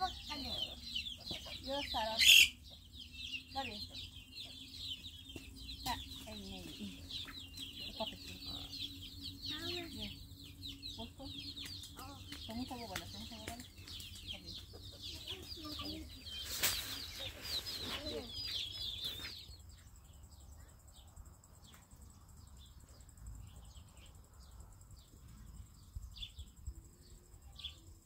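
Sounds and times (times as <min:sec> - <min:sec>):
chickens clucking: 0:00.0 - 0:19.4
chicks cheeping: 0:00.0 - 0:28.0
faint bird chirps: 0:00.0 - 0:28.0.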